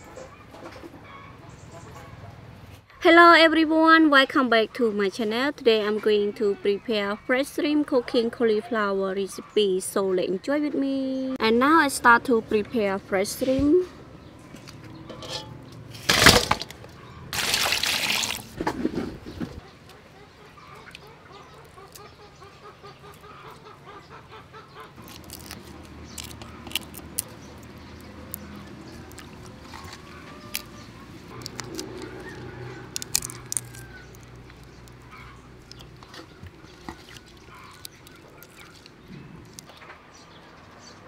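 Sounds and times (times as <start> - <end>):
birds calling: 0.0 - 2.5, 16.7 - 17.8, 18.8 - 41.0
small water splashes: 17.3 - 18.6, 36.2 - 39.1
shrimp shell clicks: 25.0 - 29.9, 32.9 - 35.0.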